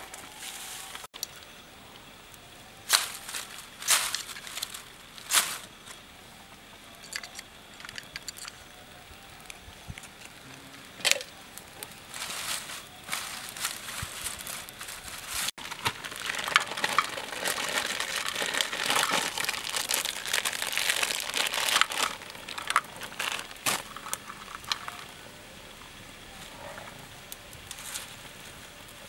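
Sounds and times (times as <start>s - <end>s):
plastic bag crinkling: 12.4s - 25.0s.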